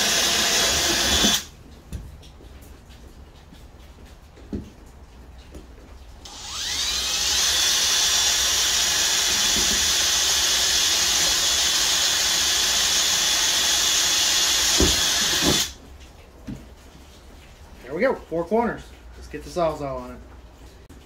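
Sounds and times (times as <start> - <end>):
cordless drill boring: 0.0 - 1.5, 6.3 - 15.8.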